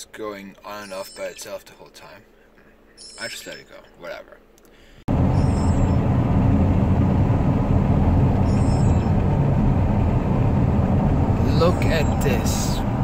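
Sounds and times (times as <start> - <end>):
car engine rumble: 5.0 - 13.0
road noise inside car: 5.0 - 13.0.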